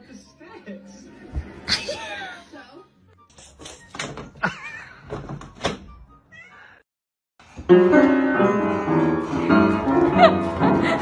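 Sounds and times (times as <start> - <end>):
piano notes in clusters: 7.7 - 11.0.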